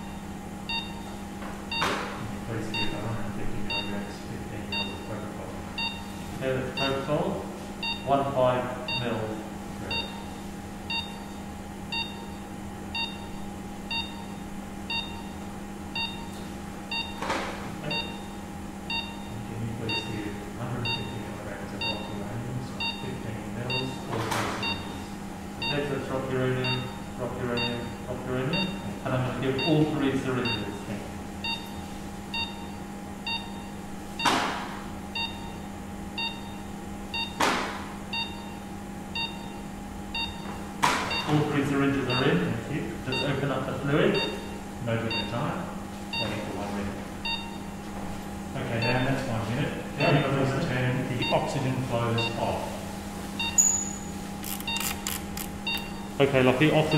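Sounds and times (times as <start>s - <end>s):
pulse oximeter beeping: 0.0s - 2.0s, 9.9s - 15.4s, 16.0s - 17.2s, 17.9s - 19.3s, 19.9s - 20.1s, 22.8s - 23.1s, 24.6s - 25.9s, 26.6s - 28.9s, 31.4s - 34.3s, 35.2s - 35.6s, 36.2s - 37.4s, 38.1s - 38.6s, 39.2s - 39.6s, 40.2s - 40.5s, 41.1s - 41.3s, 44.2s - 45.3s, 47.2s - 47.6s, 53.4s - 56.2s
machine hum: 0.0s - 56.9s.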